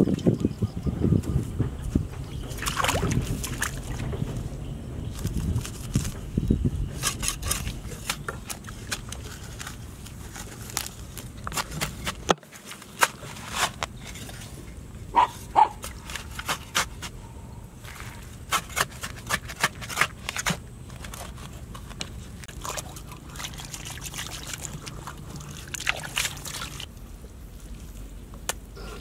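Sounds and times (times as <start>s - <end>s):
hoe chopping and scraping soil: 6.8s - 14.6s, 15.2s - 17.2s, 17.8s - 22.6s.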